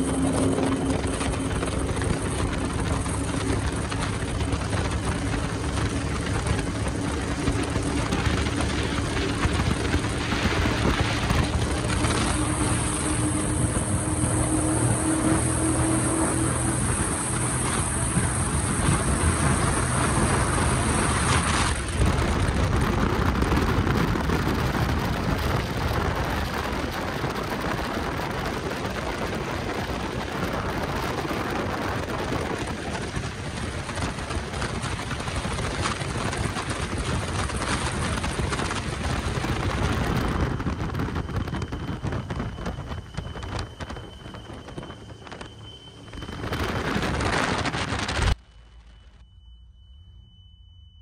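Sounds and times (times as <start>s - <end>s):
boat engines running: 0.0s - 48.4s
rushing wind: 0.0s - 48.7s
faint high whine: 0.0s - 51.0s.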